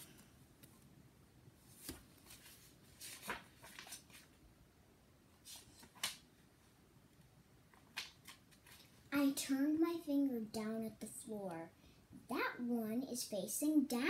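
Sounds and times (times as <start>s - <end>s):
book rustling and tapping: 1.7s - 4.3s, 7.8s - 9.0s.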